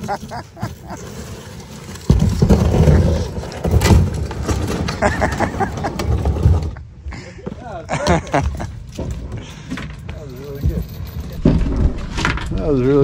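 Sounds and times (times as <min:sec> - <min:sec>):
boat hull scraping on ground: 0:00.0 - 0:06.9.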